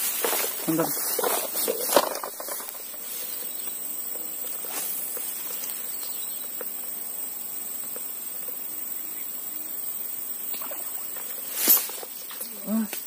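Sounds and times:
outdoor background hiss: 0.0s - 13.0s
faint ticks: 3.6s - 7.0s, 7.8s - 8.7s.

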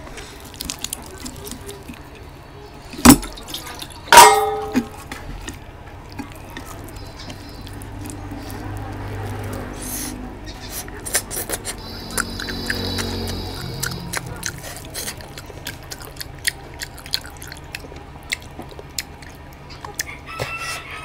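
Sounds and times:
wet mouth clicks and chewing: 0.2s - 2.3s, 3.0s - 4.1s, 4.7s - 10.1s, 10.7s - 20.2s
ringing clink: 4.1s - 4.9s.

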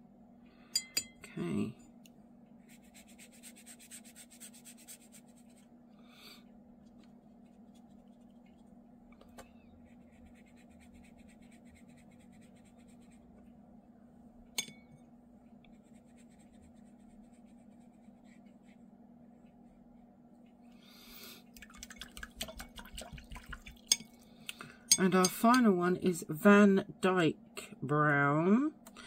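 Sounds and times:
steady low hum: 0.0s - 29.0s
paintbrush scratching on paper: 2.6s - 5.7s, 7.1s - 8.8s, 9.8s - 13.4s, 15.6s - 19.8s.

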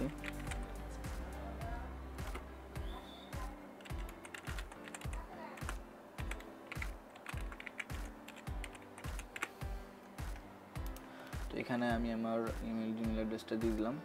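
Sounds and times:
keyboard keys clicking: 0.0s - 0.8s, 3.8s - 9.5s, 10.3s - 11.1s
background music with low beat: 0.0s - 14.0s.

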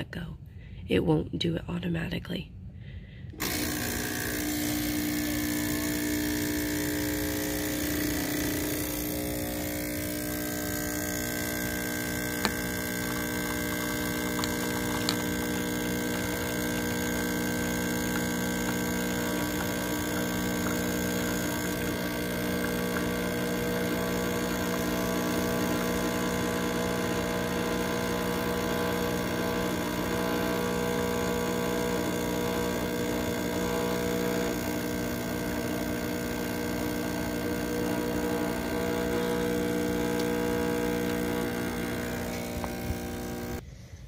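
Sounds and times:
espresso machine pump humming: 3.3s - 43.6s
espresso streaming into cup: 3.4s - 43.6s.

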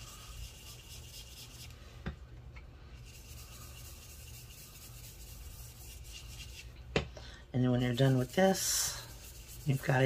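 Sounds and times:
brush rubbing on paper: 0.0s - 1.8s, 2.9s - 6.8s, 7.6s - 10.0s.

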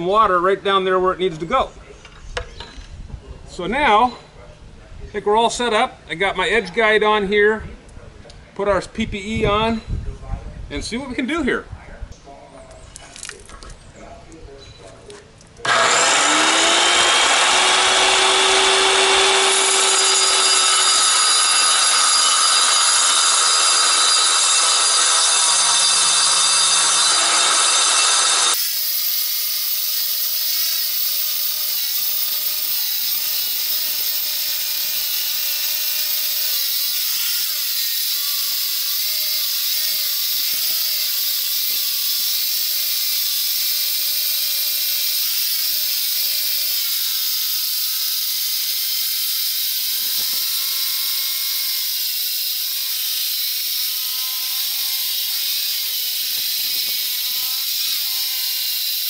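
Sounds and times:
circular saw cutting stone: 15.6s - 59.0s.

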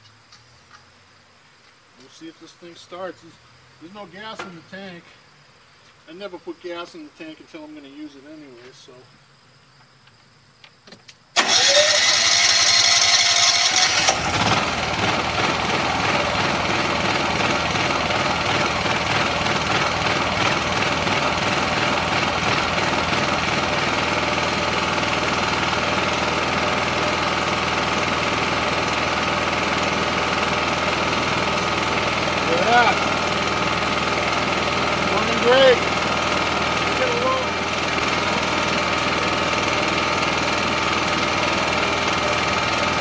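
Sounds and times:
generator engine running: 11.4s - 43.0s.

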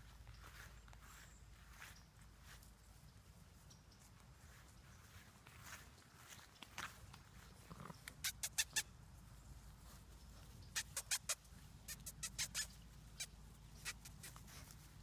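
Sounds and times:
dog sniffing: 10.7s - 12.8s, 13.8s - 15.0s.

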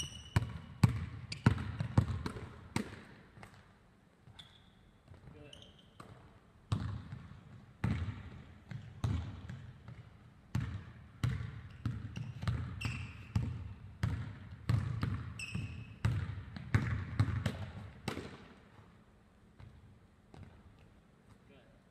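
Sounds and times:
shoe squeaks: 0.0s - 0.6s, 1.3s - 1.6s, 4.3s - 6.1s, 12.2s - 13.4s, 15.3s - 16.0s
basketball bouncing on wooden floor: 0.0s - 3.6s, 5.0s - 5.3s, 6.0s - 18.9s, 19.6s - 20.9s.

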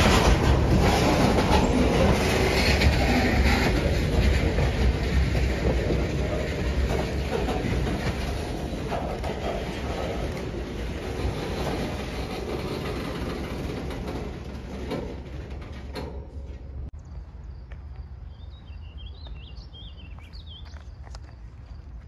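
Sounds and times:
diesel locomotive passing: 0.0s - 17.5s
bird chirps: 18.2s - 21.0s.

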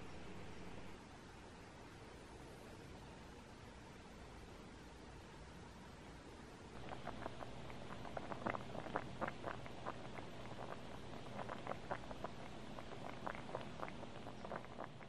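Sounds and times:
low steady hum: 0.0s - 15.0s
soup bubbling in a pot: 6.8s - 15.0s.

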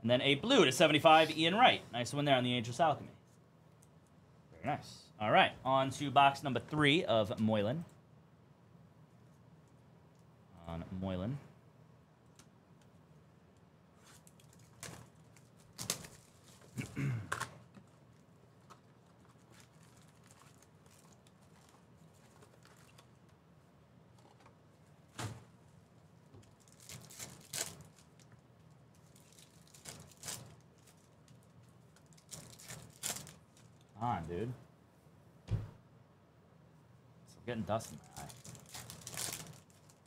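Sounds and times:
foil wrappers crinkling and ripping: 14.0s - 17.6s, 18.6s - 23.2s, 26.4s - 33.9s, 37.7s - 40.0s.

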